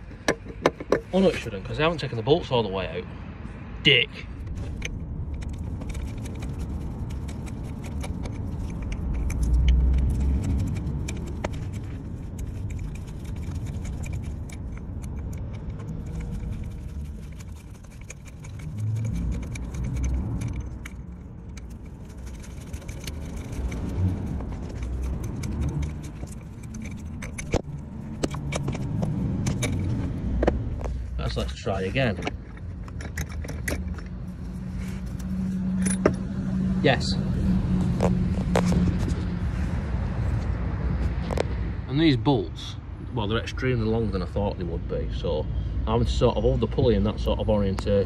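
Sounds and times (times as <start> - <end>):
small metallic clicks and clinks: 35.2 - 36.2.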